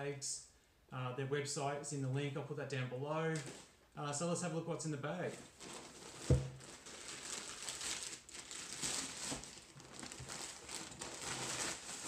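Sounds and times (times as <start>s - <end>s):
plastic crinkling and rustling: 5.3s - 12.0s
sharp thump: 6.3s - 6.6s.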